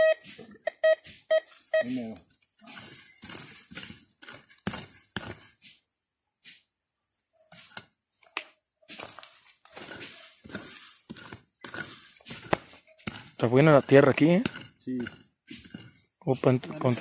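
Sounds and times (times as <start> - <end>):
hand pick chopping into soil: 2.6 - 5.8, 7.5 - 16.0.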